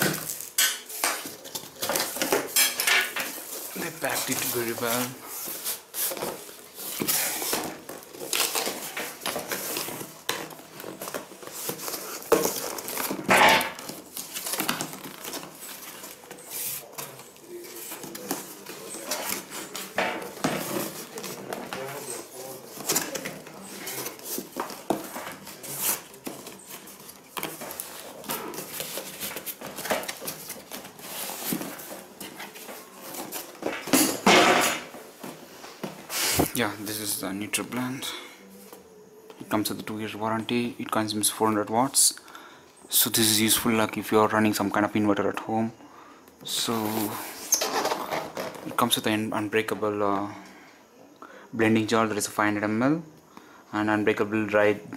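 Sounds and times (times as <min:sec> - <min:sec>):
cardboard flaps rustling and scraping: 0:00.0 - 0:37.1, 0:46.5 - 0:49.0.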